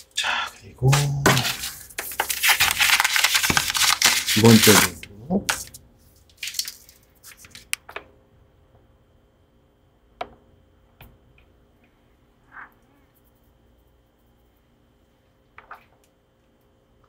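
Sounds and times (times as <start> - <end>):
paper packet rustling: 0.9 - 7.8.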